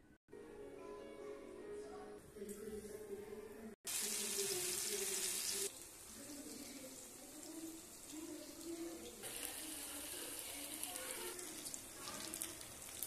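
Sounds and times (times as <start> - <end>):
oil sizzling in a frying pan: 3.9 - 13.0.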